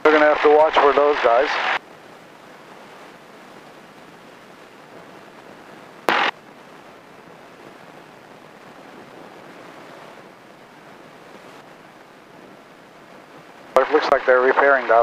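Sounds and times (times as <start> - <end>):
cockpit intercom hiss: 0.0 - 1.8, 6.1 - 6.4, 13.8 - 15.0
loud burst of static: 0.0 - 15.0.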